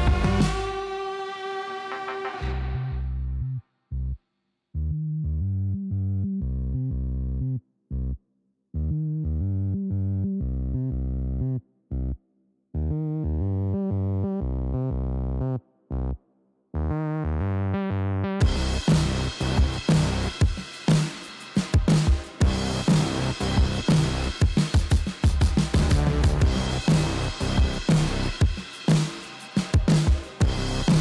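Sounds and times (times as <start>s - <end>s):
electronic music synth chords: 0.0s - 3.2s, 12.8s - 16.2s, 16.8s - 31.0s.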